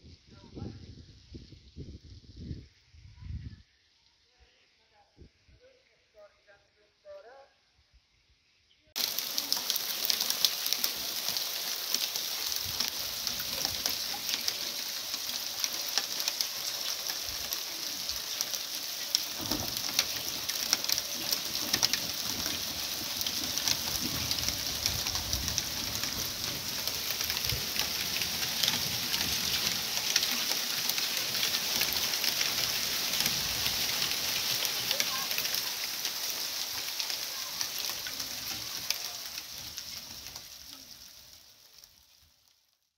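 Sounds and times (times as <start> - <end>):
rain falling on ground and puddles: 9.0 - 42.9.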